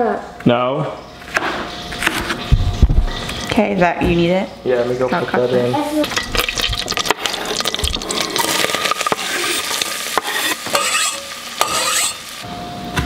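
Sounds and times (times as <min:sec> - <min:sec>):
onion sizzling in butter: 0:06.0 - 0:12.5
scraping off cutting board: 0:08.1 - 0:12.2.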